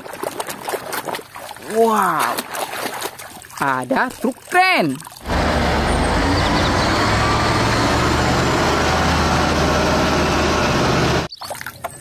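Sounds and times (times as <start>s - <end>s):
crane diesel engine droning: 5.2s - 11.3s.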